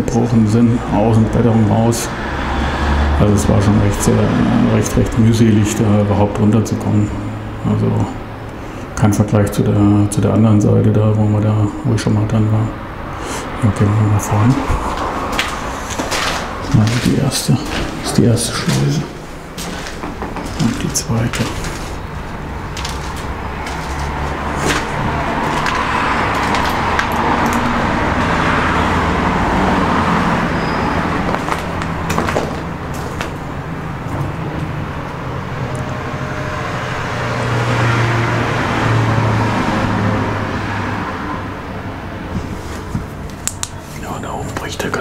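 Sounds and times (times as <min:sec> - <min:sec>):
road traffic rumbling: 0:00.0 - 0:45.0
sharp knocks: 0:19.6 - 0:22.1.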